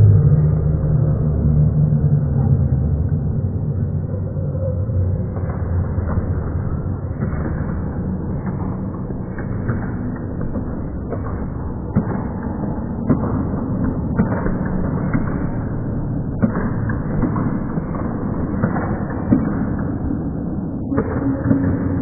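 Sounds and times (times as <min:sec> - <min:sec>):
muffled sports hall din: 0:00.0 - 0:22.0
basketballs bouncing on court: 0:09.2 - 0:22.0.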